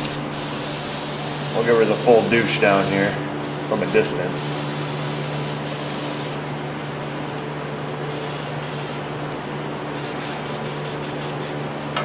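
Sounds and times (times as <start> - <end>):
aerosol spray hissing: 0.0 - 6.4, 8.1 - 9.0, 10.0 - 11.6
steady low hum: 0.0 - 12.0.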